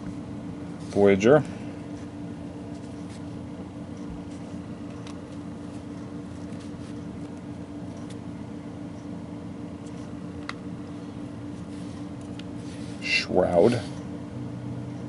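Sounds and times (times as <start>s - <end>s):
background hum: 0.0s - 15.0s
trading cards sliding: 1.9s - 3.4s, 4.1s - 8.3s, 9.8s - 14.0s.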